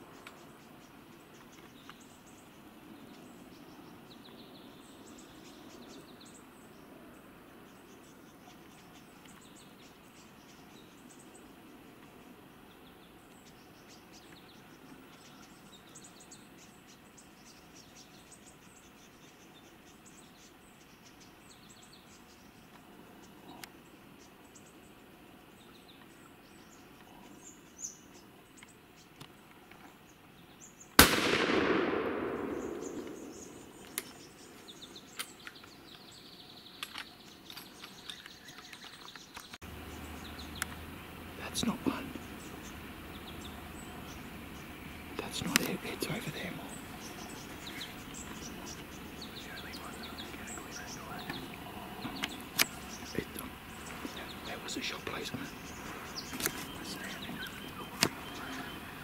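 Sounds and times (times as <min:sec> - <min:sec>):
birds chirping: 0:00.0 - 0:59.0
faint insects chirping: 0:00.0 - 0:59.0
rifle shot with echo: 0:31.0 - 0:34.2.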